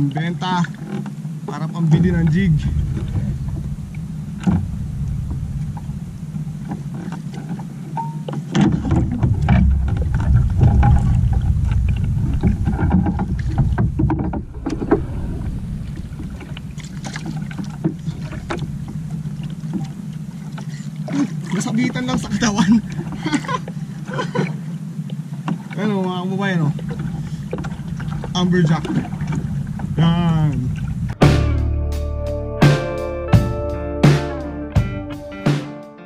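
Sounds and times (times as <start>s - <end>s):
water sloshing against canoe hull: 0.0s - 31.2s
wind rumble on microphone: 0.8s - 23.9s, 26.6s - 31.2s.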